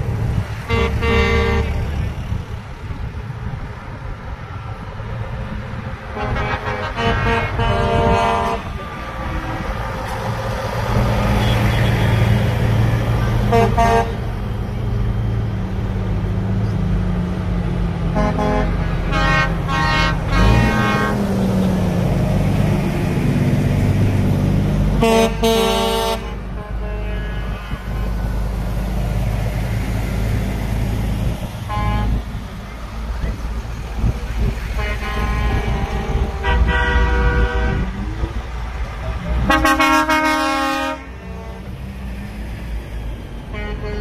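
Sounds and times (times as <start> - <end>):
heavy truck engines running: 0.0 - 44.0
truck horns blasting: 0.2 - 2.4, 6.1 - 14.6, 18.1 - 22.2, 24.9 - 28.6, 31.6 - 32.3, 34.4 - 38.3, 39.2 - 41.9, 43.5 - 44.0.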